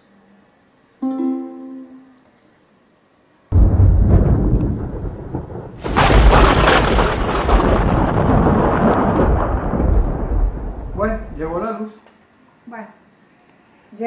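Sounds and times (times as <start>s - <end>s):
deep crackling rumbling roar: 3.5s - 11.6s.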